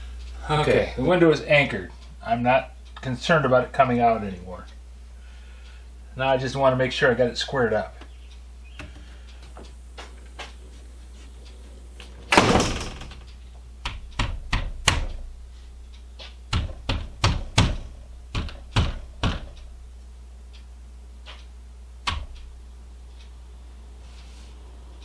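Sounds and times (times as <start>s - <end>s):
rattling thud: 12.3s - 13.2s
knocks on wooden window frame: 16.5s - 19.5s.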